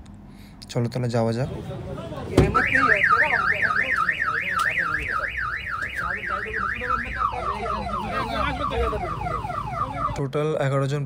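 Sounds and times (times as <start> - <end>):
car alarm siren: 2.4 - 10.3.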